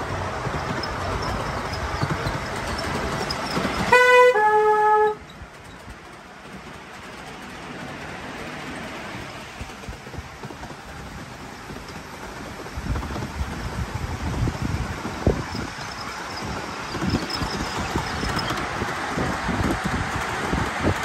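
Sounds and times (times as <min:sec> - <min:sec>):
train running rumble: 0:00.0 - 0:21.0
train two-note toot: 0:03.9 - 0:05.2.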